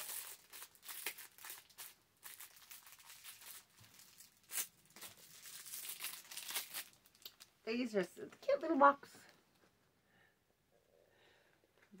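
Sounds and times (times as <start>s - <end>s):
packaging crinkling and rustling: 0.0s - 7.6s.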